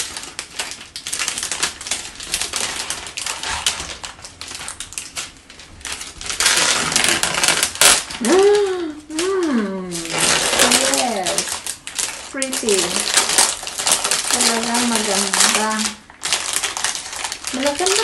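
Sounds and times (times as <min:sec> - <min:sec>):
plastic sleeve crinkling: 0:00.0 - 0:18.0
person making short sound: 0:08.2 - 0:10.1.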